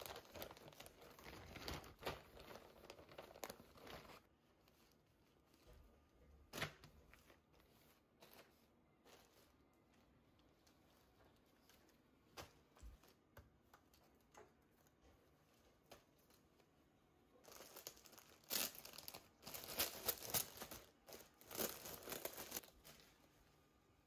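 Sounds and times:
plastic garment bag crinkling: 0.0s - 5.7s, 17.4s - 23.4s.

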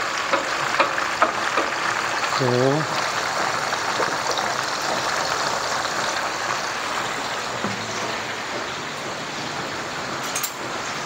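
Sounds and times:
gravy bubbling in a wok: 0.0s - 11.0s.

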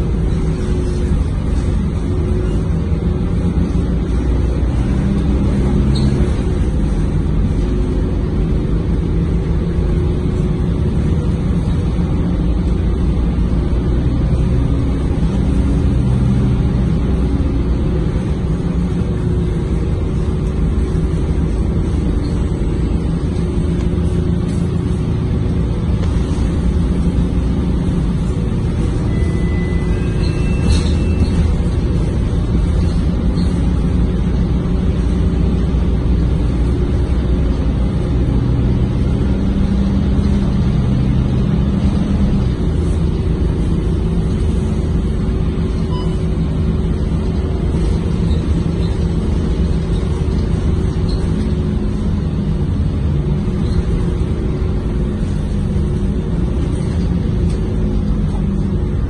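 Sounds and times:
bus engine drone: 0.0s - 59.0s
road noise: 0.0s - 59.0s
brief high tones: 45.9s - 46.3s.

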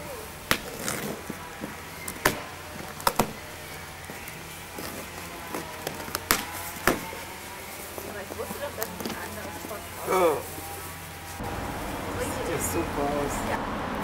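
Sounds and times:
cardboard rustling: 0.4s - 11.4s
packing tape tearing: 0.5s - 10.7s.

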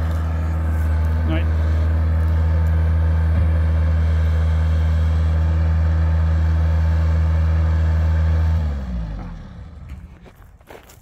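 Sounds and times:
diesel engine running then shutting off: 0.0s - 10.5s.

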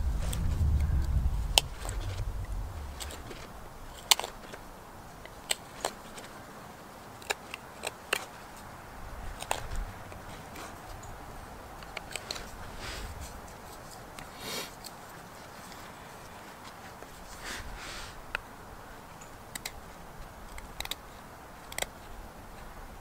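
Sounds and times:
knife snicking wood shavings: 11.8s - 16.4s.

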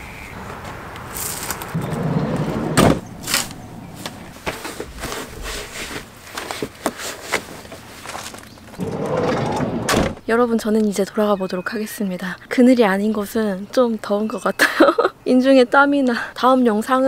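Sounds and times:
sliding van door thudding shut: 1.8s - 3.4s, 8.8s - 10.2s.

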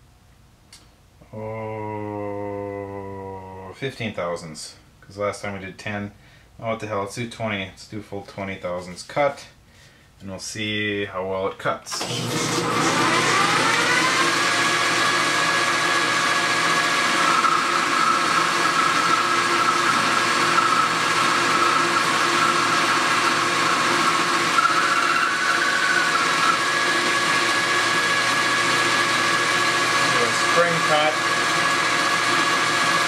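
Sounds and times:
lathe tool cutting metal bar: 12.0s - 33.0s
metal lathe whining: 12.0s - 33.0s.

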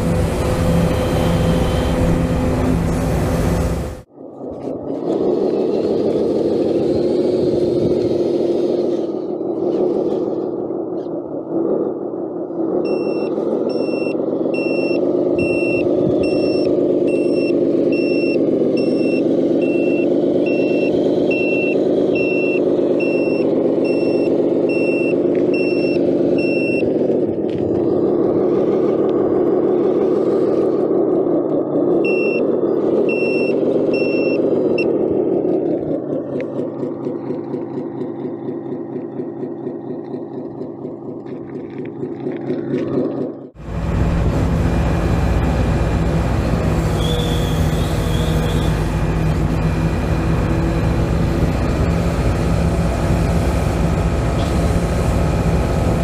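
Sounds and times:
diesel engine sound: 0.0s - 56.0s
reversing alarm beeping: 0.7s - 2.4s, 12.8s - 26.9s, 32.0s - 34.9s.

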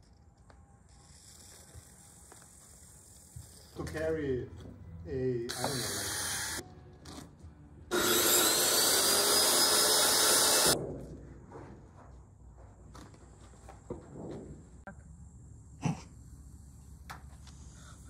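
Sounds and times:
power saw cutting: 5.5s - 6.6s, 7.9s - 10.8s.

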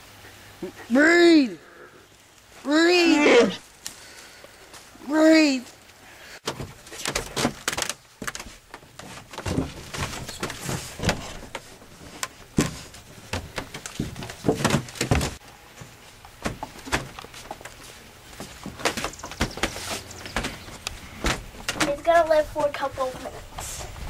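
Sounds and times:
rustling: 5.6s - 24.0s
knocks and thumps on wood: 6.4s - 15.4s.

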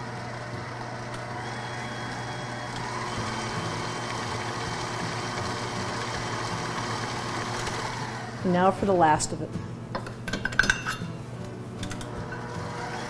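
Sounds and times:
stand mixer motor humming: 0.0s - 8.4s, 12.2s - 13.0s.

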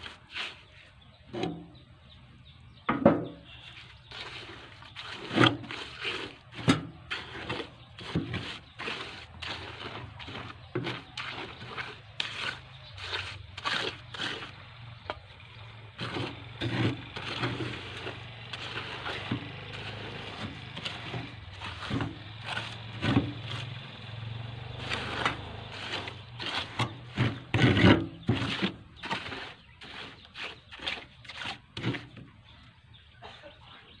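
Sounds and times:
trowel scraping wet concrete: 0.0s - 1.7s, 3.5s - 32.3s.

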